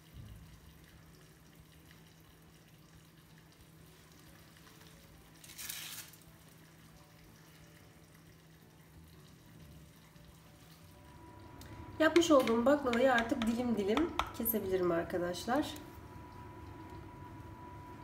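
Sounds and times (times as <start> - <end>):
low steady hum: 6.2 - 18.0.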